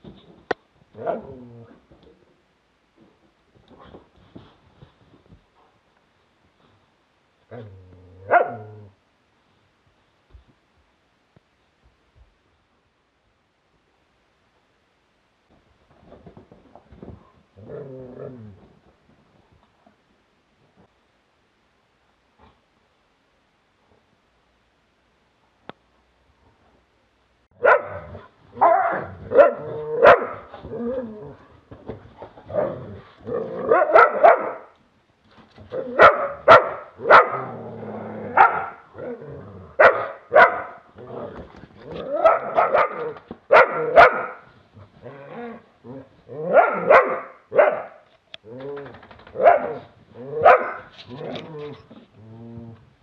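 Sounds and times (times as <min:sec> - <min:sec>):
dogs growling and barking: 0:27.6 - 0:31.5, 0:32.2 - 0:34.6, 0:35.7 - 0:52.8.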